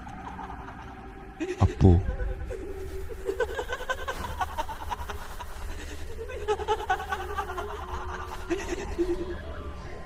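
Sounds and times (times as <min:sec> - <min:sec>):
low drone: 0:00.0 - 0:10.0
woman laughing: 0:06.2 - 0:09.4.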